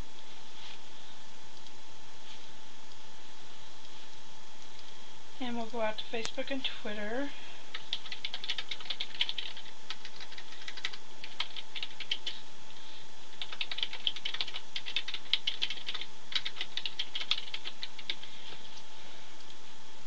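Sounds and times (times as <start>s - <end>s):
typing on computer keyboard: 7.7s - 12.4s, 13.4s - 18.3s.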